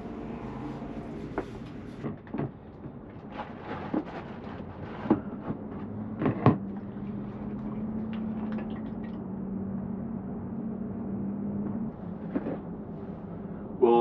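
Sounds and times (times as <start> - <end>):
steady low hum: 0.0 - 2.1.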